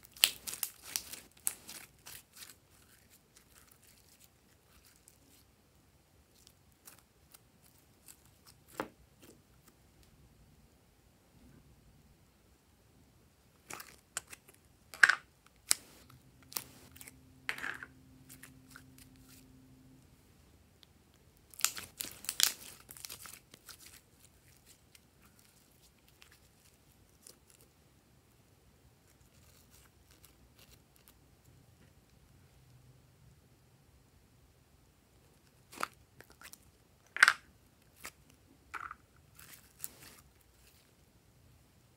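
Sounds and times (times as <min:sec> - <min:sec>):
slime crackling: 0:00.0 - 0:05.4, 0:21.5 - 0:27.6.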